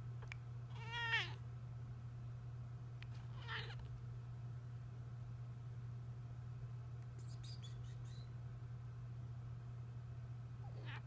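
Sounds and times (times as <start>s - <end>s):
cat meowing: 0.7s - 1.4s, 3.3s - 3.9s, 10.7s - 11.0s.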